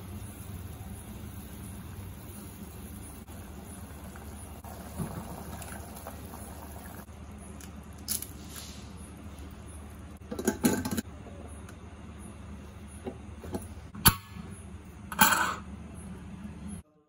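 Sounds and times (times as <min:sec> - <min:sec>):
water boiling in a pot: 0:00.0 - 0:11.7.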